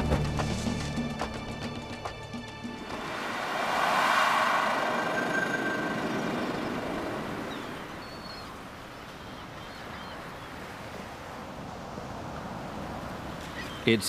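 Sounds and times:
music: 0.0s - 3.3s
rushing background ambience: 0.0s - 14.0s.

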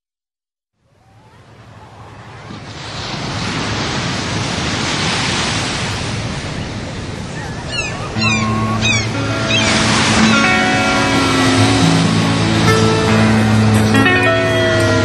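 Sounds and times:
steady rushing surf noise: 1.2s - 15.0s
background music low notes: 8.2s - 15.0s.

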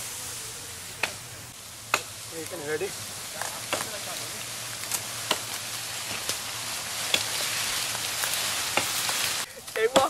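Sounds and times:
branch rustling through brush: 0.0s - 10.0s
twigs snapping: 3.3s - 10.0s.

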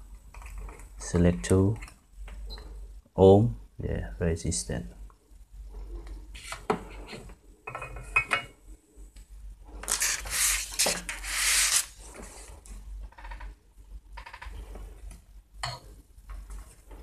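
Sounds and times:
loud rustling rub: 9.7s - 12.6s.

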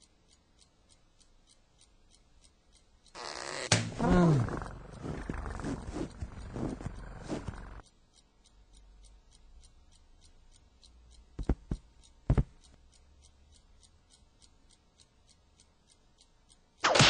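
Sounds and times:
faint steady ticking: 0.0s - 17.0s
short knocks: 11.4s - 12.6s.

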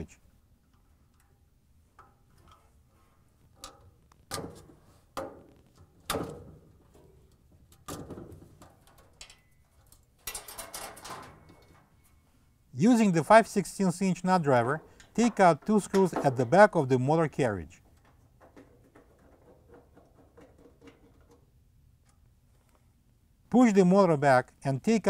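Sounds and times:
handling of wires: 0.6s - 12.4s.

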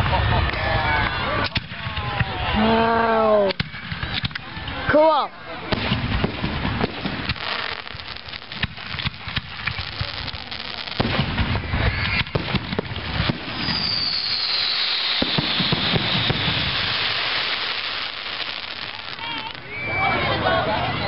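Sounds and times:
fireworks bangs and crackles: 0.0s - 21.0s
high falling hiss: 11.6s - 19.7s.

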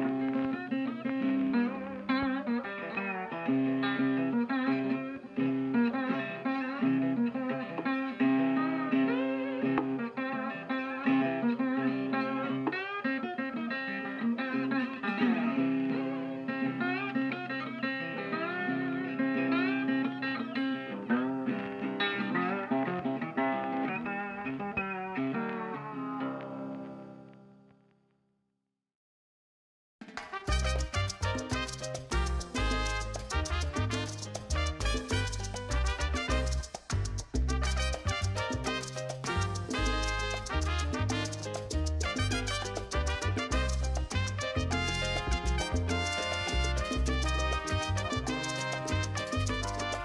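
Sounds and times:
instrumental guitar music: 0.0s - 27.8s, 30.2s - 50.0s.

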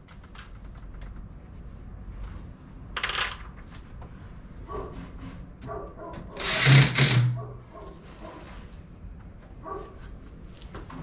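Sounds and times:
power tool hissing and humming: 6.4s - 7.3s.

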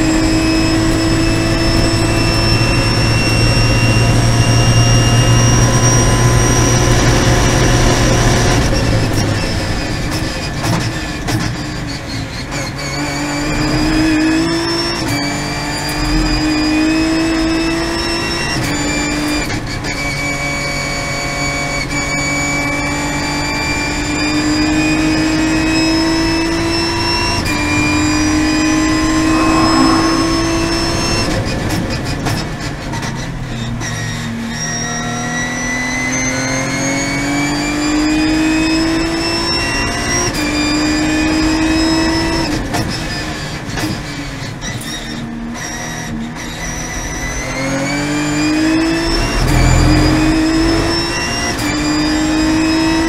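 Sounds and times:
race car engine revving: 27.4s - 31.5s, 48.2s - 53.0s.

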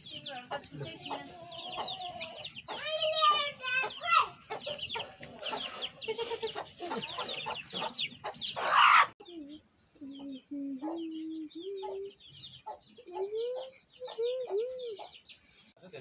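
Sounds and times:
chickens clucking: 0.0s - 15.8s
drawn-out chicken call: 0.8s - 9.2s.

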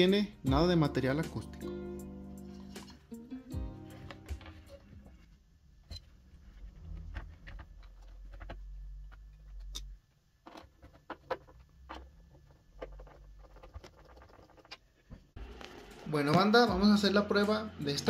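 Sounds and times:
handling clicks and scrapes: 5.9s - 15.1s.

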